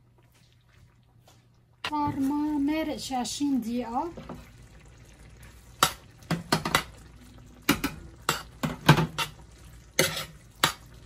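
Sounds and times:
utensil scraping a pan: 10.0s - 10.8s.

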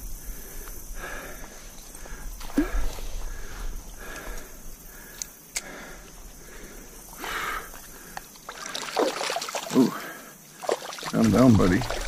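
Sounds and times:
water splashing in a stream: 7.8s - 12.0s.

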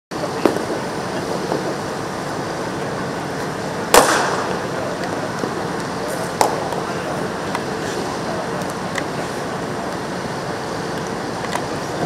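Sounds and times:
steady background noise: 0.1s - 12.0s
cricket bat striking ball: 3.9s - 4.6s, 6.4s - 6.8s.

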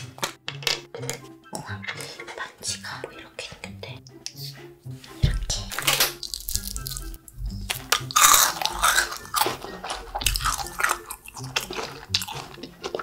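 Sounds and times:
soft background music: 0.0s - 13.0s
crunching and chewing candy: 5.7s - 13.0s.

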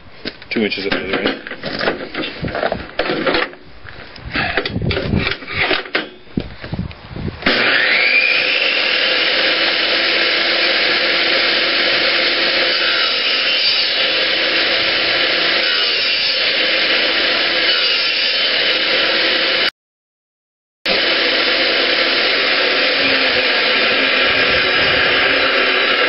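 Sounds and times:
saw cutting wood: 7.4s - 19.7s, 20.9s - 26.0s
table saw whine: 7.4s - 19.7s, 20.9s - 26.0s.

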